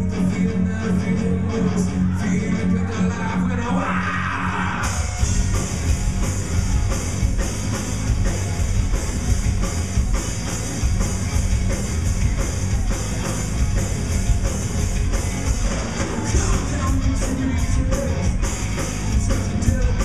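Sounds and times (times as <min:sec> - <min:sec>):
rock band playing: 0:00.0 - 0:20.0
drums and cymbals: 0:04.6 - 0:20.0
strummed electric guitar: 0:04.8 - 0:20.0.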